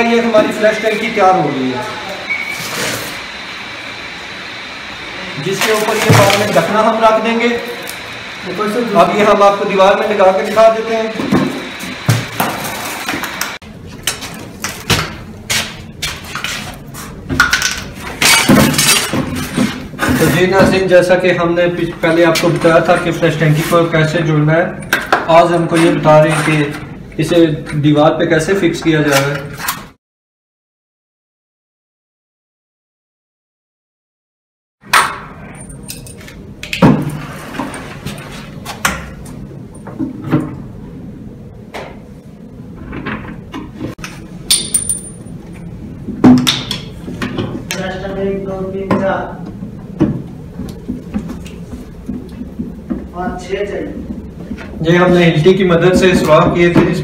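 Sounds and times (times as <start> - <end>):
steady background noise: 0.0 - 29.9, 34.8 - 57.0.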